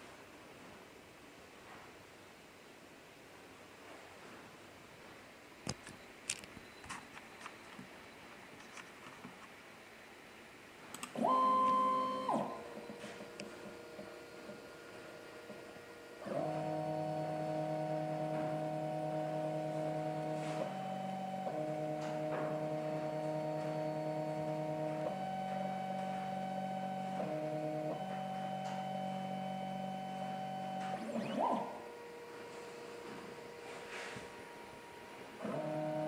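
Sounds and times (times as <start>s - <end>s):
stepper motors humming: 11.0s - 36.0s.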